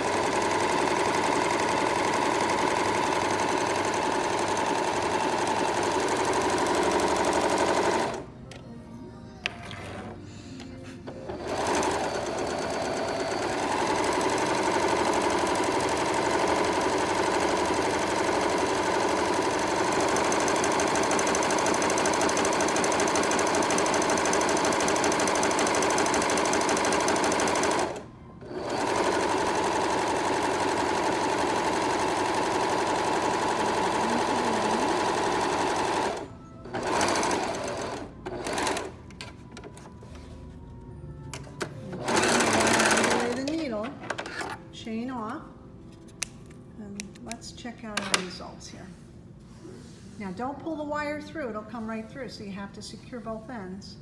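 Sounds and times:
overlocker sewing machine running: 0.0s - 8.3s, 11.1s - 38.9s, 41.9s - 43.6s.

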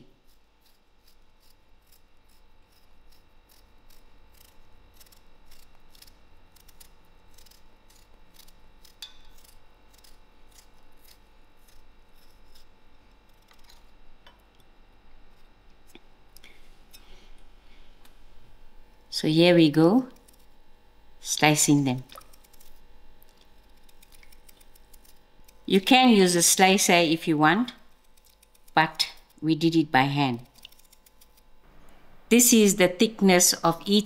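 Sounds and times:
knife peeling potato: 0.0s - 14.2s, 22.0s - 27.0s, 27.7s - 31.6s.

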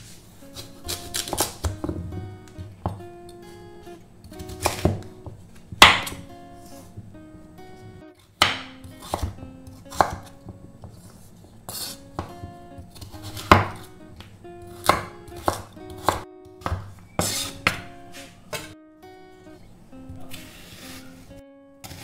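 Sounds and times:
soft background music: 0.0s - 22.0s
knife chopping on wooden board: 0.9s - 2.0s, 4.4s - 5.0s, 8.4s - 11.0s, 13.0s - 13.9s, 14.8s - 17.9s.

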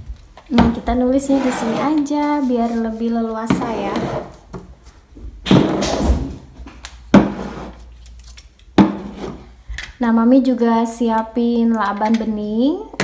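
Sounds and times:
plastic bottles handling noise: 0.0s - 9.9s.

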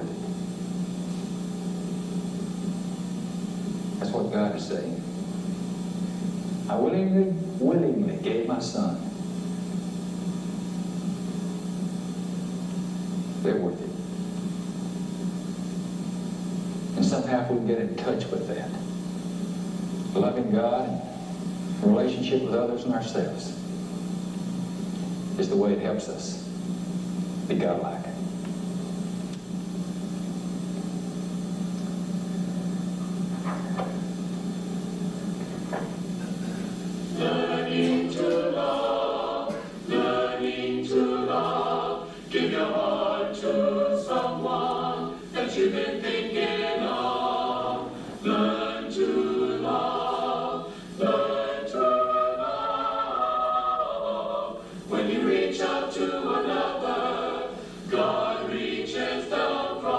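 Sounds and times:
electrical hum: 0.0s - 59.9s
vocal group singing: 37.1s - 59.9s.

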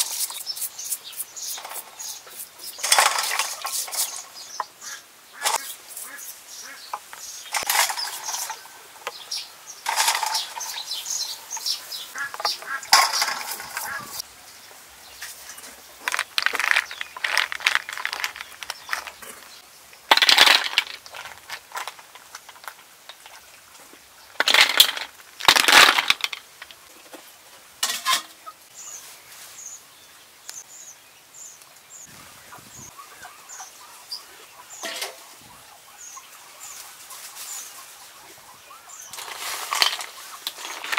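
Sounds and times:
steel wool scrubbing shells: 0.0s - 4.4s, 15.2s - 19.5s, 39.1s - 40.9s
small birds chirping: 0.0s - 20.1s, 28.7s - 40.9s
shells clattering in water: 16.0s - 19.2s, 20.1s - 23.4s, 24.4s - 26.7s, 39.2s - 40.9s.

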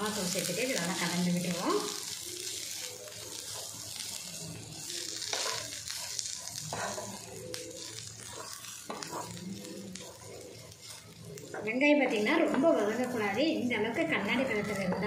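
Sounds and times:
onions sizzling in a pan: 0.0s - 15.0s
spatula scraping pan: 5.3s - 15.0s.

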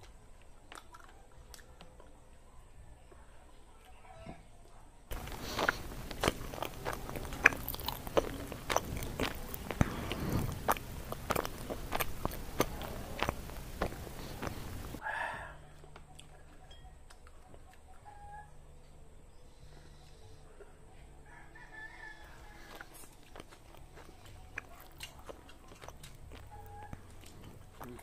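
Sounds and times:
chewing leaves with wet crunches: 0.0s - 2.0s, 5.1s - 15.0s, 21.8s - 28.0s
mouth clicks: 5.1s - 15.0s, 22.6s - 28.0s.

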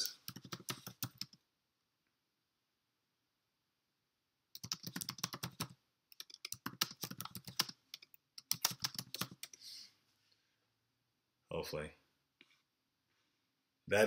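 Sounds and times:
typing on a computer keyboard: 0.1s - 1.4s, 4.6s - 9.6s.

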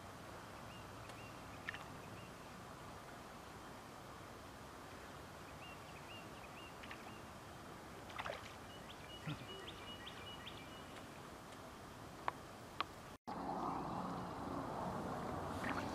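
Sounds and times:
faint background wash: 0.0s - 15.9s
small bird chirping: 8.6s - 11.1s.

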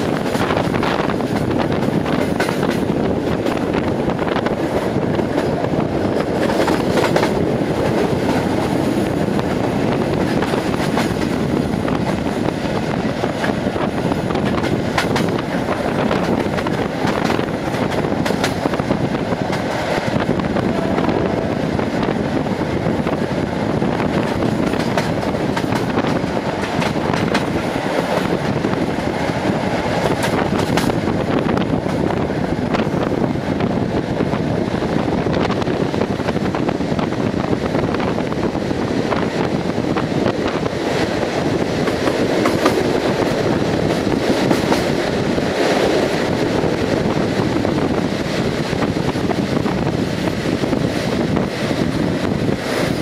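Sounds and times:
wheels clicking over rail joints: 0.0s - 20.2s, 24.0s - 32.1s
train wheels rumbling on rails: 0.0s - 53.0s.

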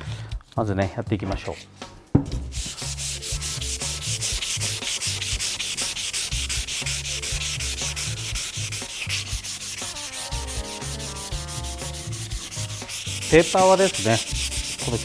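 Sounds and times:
sandpaper rubbing on wood: 2.5s - 15.0s.

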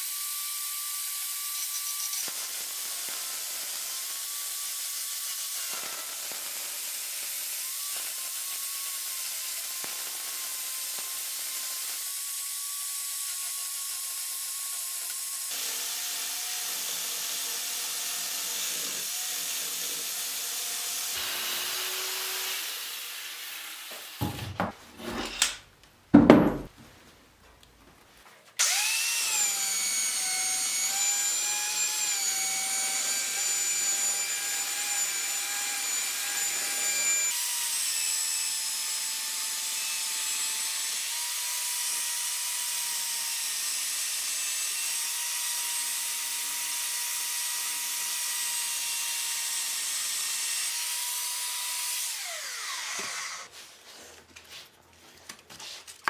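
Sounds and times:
knocks: 24.2s - 24.8s, 26.1s - 26.8s.

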